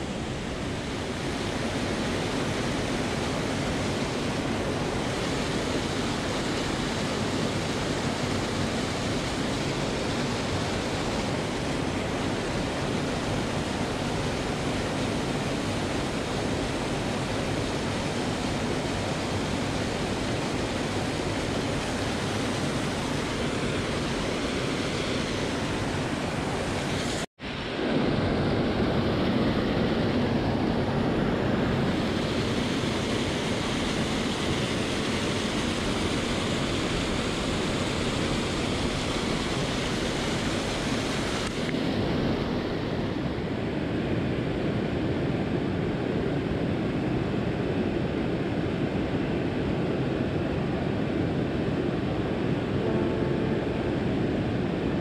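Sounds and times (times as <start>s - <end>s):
river current rushing: 0.0s - 43.3s.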